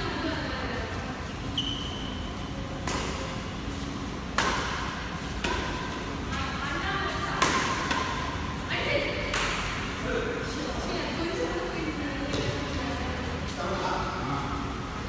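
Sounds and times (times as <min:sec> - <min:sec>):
racquets hitting shuttlecock: 0:02.7 - 0:06.5, 0:07.2 - 0:08.6, 0:09.2 - 0:09.9.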